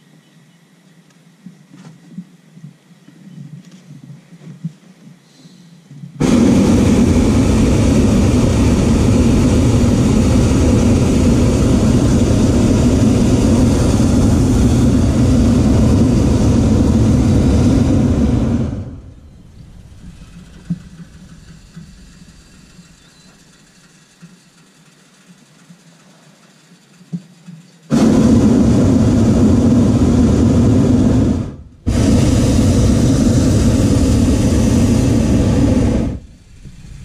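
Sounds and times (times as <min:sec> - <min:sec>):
propane burner firing: 0:06.2 - 0:25.9, 0:27.9 - 0:37.0.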